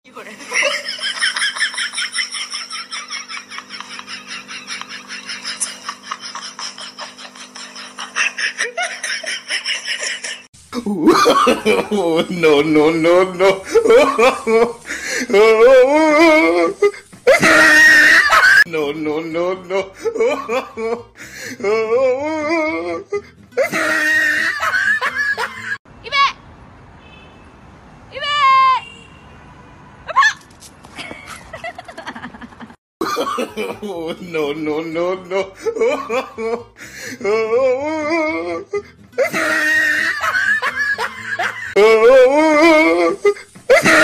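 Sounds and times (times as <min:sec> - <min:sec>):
person laughing loudly: 0:00.3 - 0:25.8, 0:31.0 - 0:44.0
high-pitched cry: 0:17.3 - 0:18.6.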